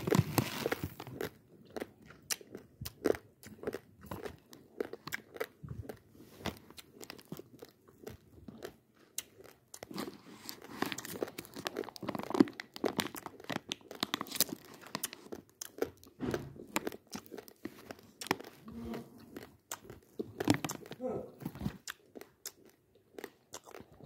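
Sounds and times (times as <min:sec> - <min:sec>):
plastic packet crinkling: 0:00.0 - 0:01.2, 0:10.0 - 0:15.5.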